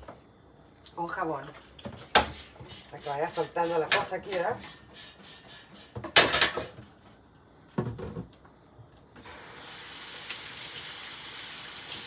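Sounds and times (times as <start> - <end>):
faucet running into sink: 9.5 - 12.0.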